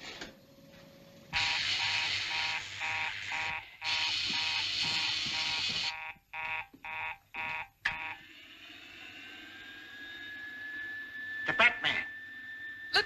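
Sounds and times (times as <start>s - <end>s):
electric alarm buzzer: 1.4s - 8.3s
faint whine rising in pitch: 8.0s - 13.0s.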